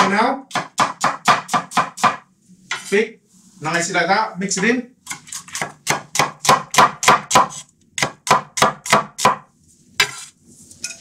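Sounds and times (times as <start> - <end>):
cleaver chopping onion on board: 0.0 - 2.2, 5.1 - 9.5.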